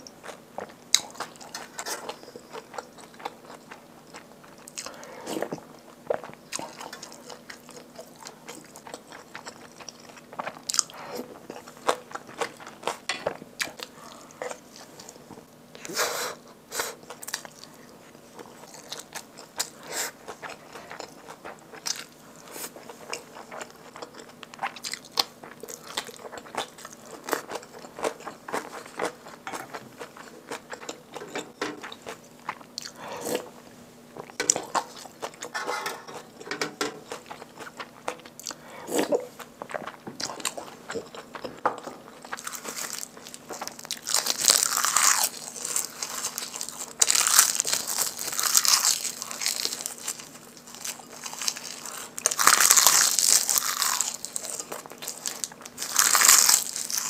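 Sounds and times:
chewing and wet mouth sounds: 0.0 - 15.2, 16.9 - 33.6, 34.2 - 57.0
dry seaweed crinkling: 42.4 - 57.0.

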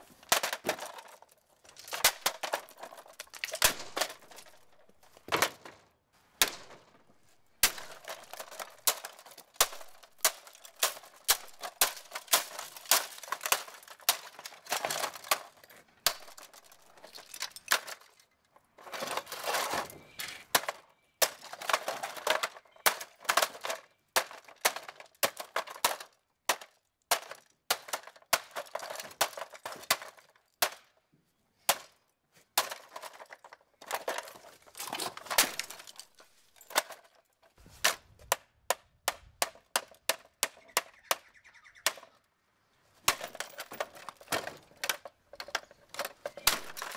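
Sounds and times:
plastic clattering: 0.0 - 31.0, 31.6 - 41.2, 43.0 - 46.9.

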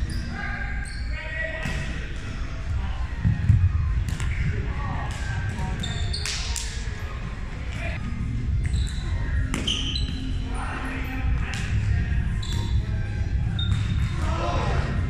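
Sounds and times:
sneakers squeaking on hardwood: 5.6 - 6.4, 8.6 - 10.3, 12.4 - 12.8.

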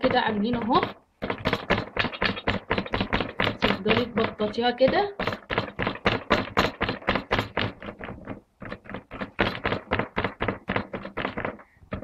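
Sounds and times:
palm patting dough on wood: 0.0 - 12.0.

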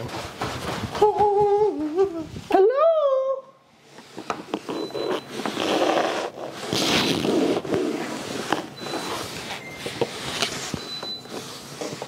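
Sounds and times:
rustling and scraping: 0.0 - 2.6, 3.8 - 12.0.

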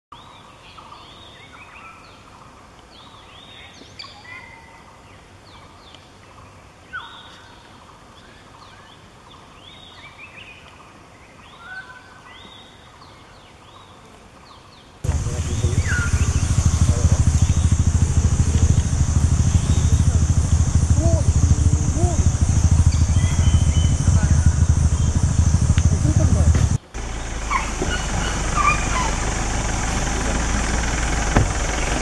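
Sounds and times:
wild birds chirping: 11.2 - 32.0.

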